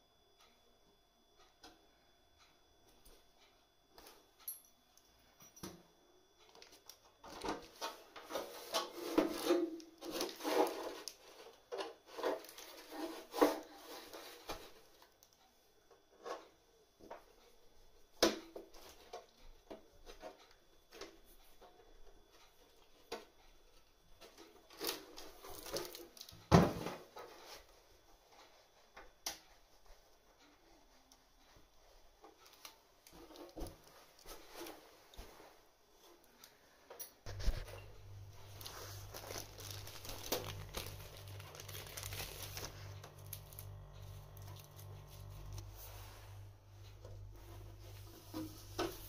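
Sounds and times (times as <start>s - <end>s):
handling noises rubbing and scraping: 7.4s - 14.8s, 37.2s - 49.0s.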